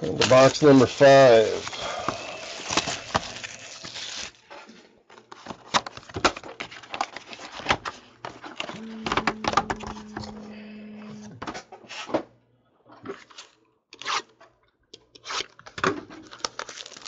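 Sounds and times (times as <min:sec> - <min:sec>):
steady low hum: 0:08.7 - 0:11.4.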